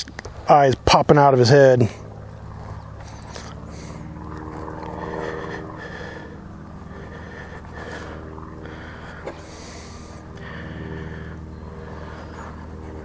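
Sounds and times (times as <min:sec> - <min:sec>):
low engine-like hum: 0:00.0 - 0:13.0
breathy sniff: 0:03.0 - 0:13.0.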